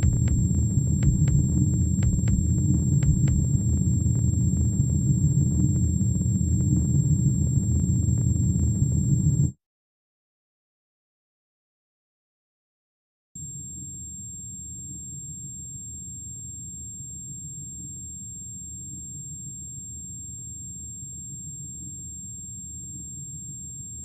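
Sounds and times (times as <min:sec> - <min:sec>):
high-pitched whine: 0:00.0 - 0:09.5
low rumble: 0:00.0 - 0:09.5.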